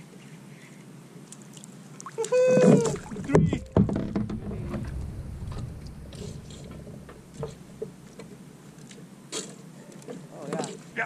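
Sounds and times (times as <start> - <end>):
wind rumble on microphone: 2.8 - 8.4.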